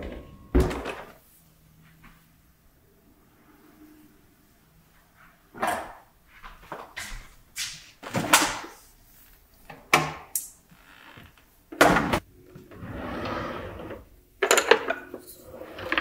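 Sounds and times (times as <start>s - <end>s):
kitchen drawer opening: 0.0s - 1.2s, 11.8s - 16.0s.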